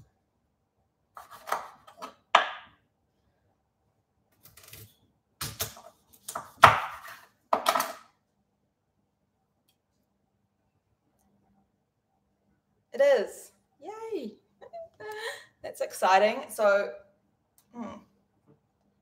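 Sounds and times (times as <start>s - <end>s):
knife chopping on wooden board: 1.2s - 2.7s, 5.4s - 7.8s.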